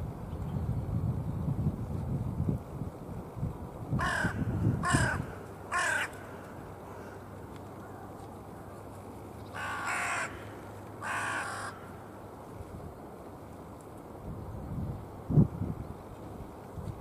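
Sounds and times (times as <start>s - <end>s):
crow cawing: 4.0s - 7.2s, 9.5s - 12.0s.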